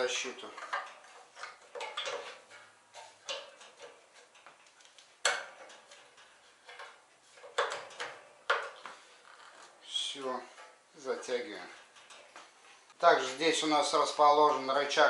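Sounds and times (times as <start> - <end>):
metal clinks and knocks: 0.0 - 9.5, 10.4 - 12.6.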